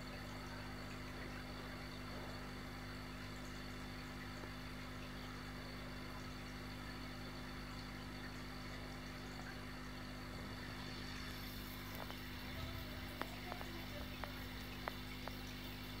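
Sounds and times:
aquarium equipment humming: 0:00.0 - 0:16.0
faint clicks: 0:11.3 - 0:16.0.

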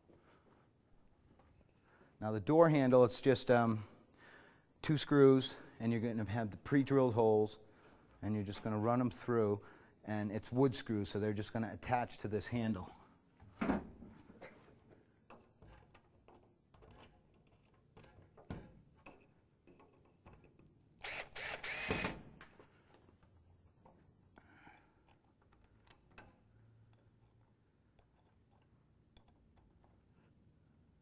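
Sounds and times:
cordless drill driving screw: 0:21.0 - 0:22.2.

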